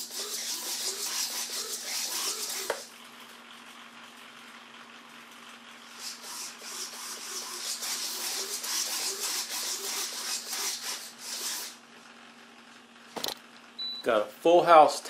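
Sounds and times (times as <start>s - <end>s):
whirring mechanical rasp: 0.0s - 2.9s, 5.9s - 11.8s.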